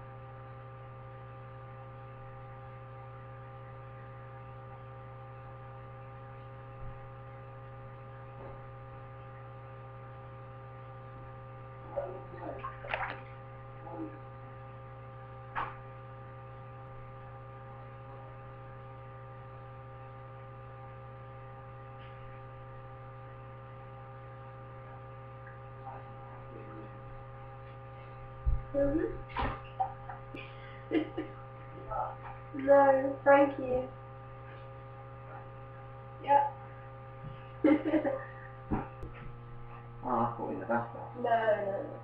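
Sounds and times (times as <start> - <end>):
electrical hum: 0.0 - 42.0
splashes in shallow water: 12.6 - 13.4.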